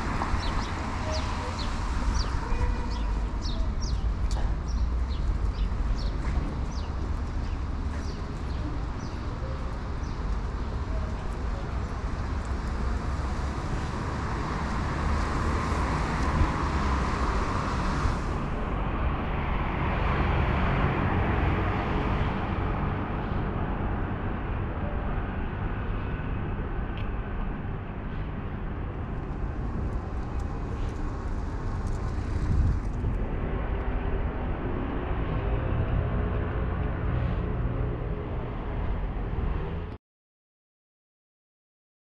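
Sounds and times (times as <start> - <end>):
cars passing with tyre hiss: 0.0 - 24.5, 28.0 - 33.6, 37.0 - 38.0
low traffic rumble: 0.0 - 40.0.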